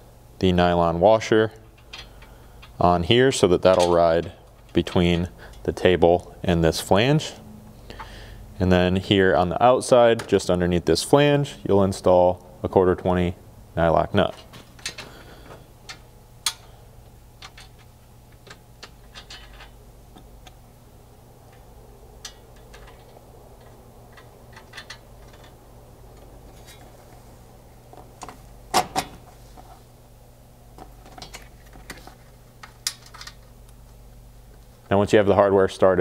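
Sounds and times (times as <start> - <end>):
metal bolts and nuts clicking: 3.6 - 5.7, 17.4 - 19.8, 22.2 - 25.6.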